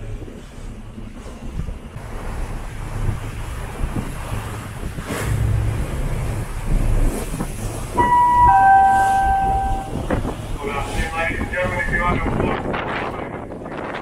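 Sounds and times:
ferry engine rumbling: 0.0 - 14.0
wind buffeting microphone: 0.0 - 14.0
two-note tone: 8.0 - 10.0.

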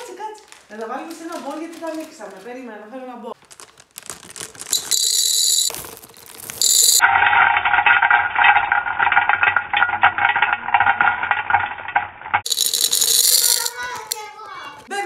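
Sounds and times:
plastic bag crinkling: 0.0 - 2.7, 3.4 - 7.0, 12.5 - 14.2
candies rattling against glass: 3.4 - 7.0, 12.4 - 14.4.

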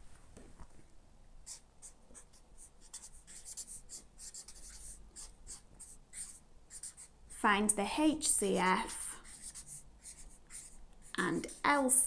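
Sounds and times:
marker pen writing on paper: 1.4 - 7.2, 9.2 - 11.9.

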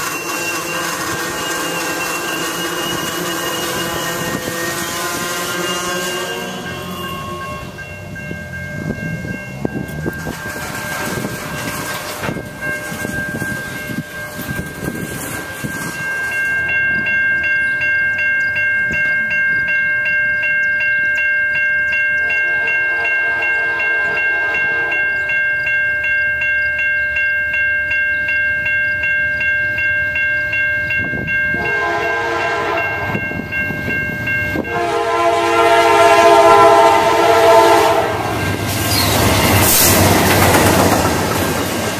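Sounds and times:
freight train wheels rolling: 0.0 - 23.1, 23.7 - 41.9
grade crossing bells ringing: 0.0 - 41.9
locomotive horn blasts: 2.8 - 7.8, 22.2 - 25.2, 31.5 - 33.2, 34.6 - 38.6.

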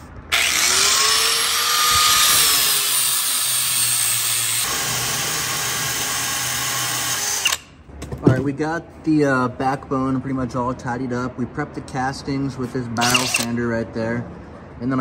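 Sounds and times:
drill sander grinding metal: 0.3 - 7.5.

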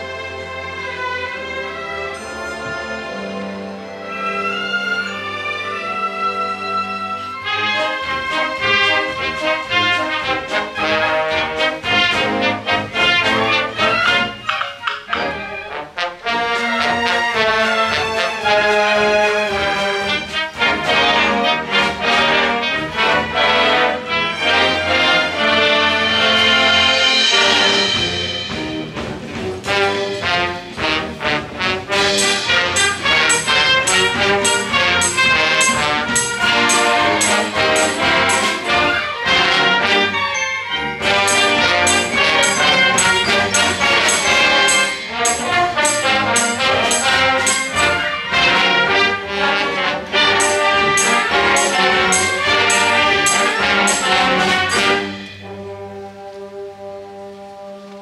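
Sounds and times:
school orchestra with brass: 0.0 - 58.0
percussion beat: 7.4 - 23.3, 26.4 - 55.5.

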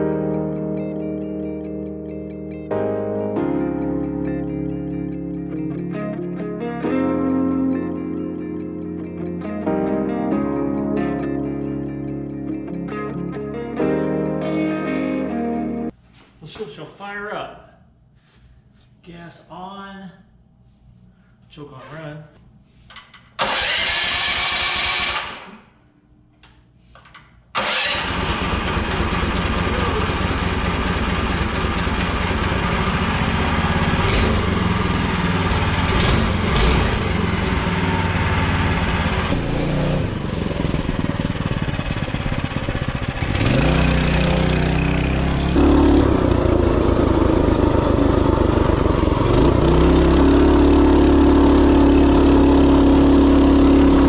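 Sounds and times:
engine cranking: 23.4 - 25.5, 27.6 - 39.4
engine revving: 23.4 - 25.5, 27.6 - 54.0
minibike engine running: 27.7 - 54.0.

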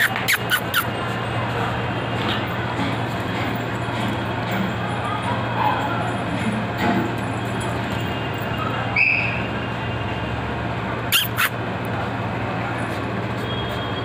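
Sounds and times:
high-pitched squeaks: 0.0 - 1.0, 11.1 - 11.6.

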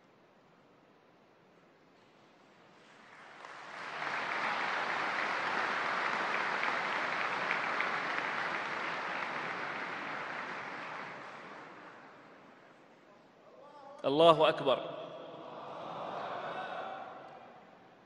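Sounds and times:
audience applause: 2.9 - 12.7.

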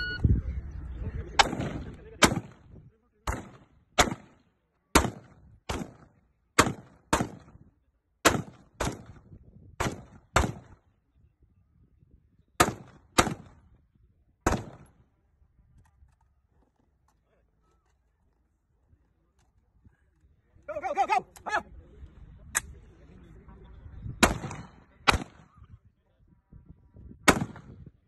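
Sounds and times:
rifle shots: 1.4 - 2.6, 3.3 - 4.4, 5.0 - 7.5, 8.2 - 9.2, 12.6 - 13.6, 14.5 - 14.9, 24.2 - 25.6, 27.3 - 27.8.

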